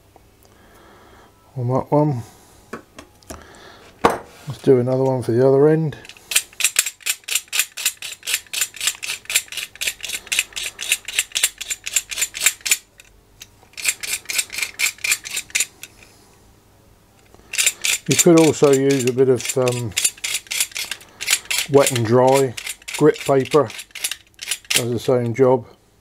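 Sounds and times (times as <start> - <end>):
knife scraping wire: 6.1 - 13.1, 13.7 - 16.1, 17.5 - 24.9.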